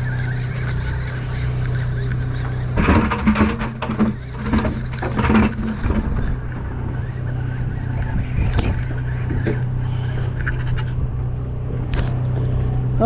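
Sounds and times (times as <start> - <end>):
boat engine droning: 0.0 - 13.0
short knocks and scrapes: 2.7 - 6.7.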